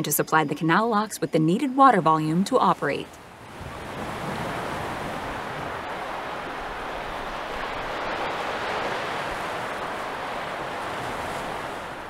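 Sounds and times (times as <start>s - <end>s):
churning water rushing: 2.8s - 12.0s.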